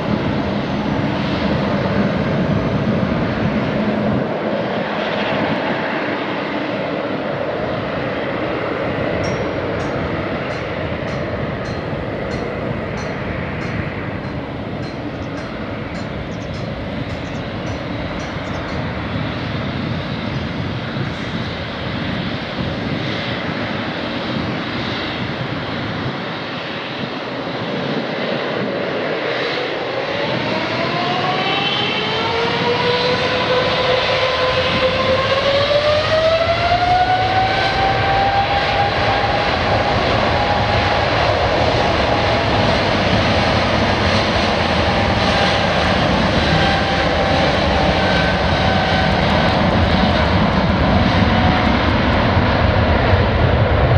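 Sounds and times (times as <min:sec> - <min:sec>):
jet engines spooling up: 0:00.0 - 0:53.9.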